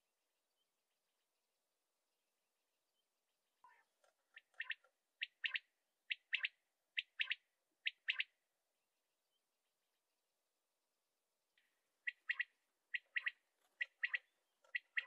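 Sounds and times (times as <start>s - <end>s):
quail singing: 3.6s - 8.3s, 12.0s - 15.0s.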